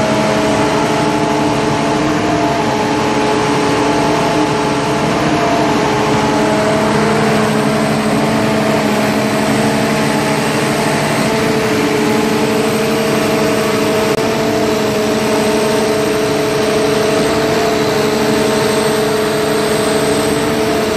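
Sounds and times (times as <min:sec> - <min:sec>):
concrete pump humming: 0:00.0 - 0:20.9.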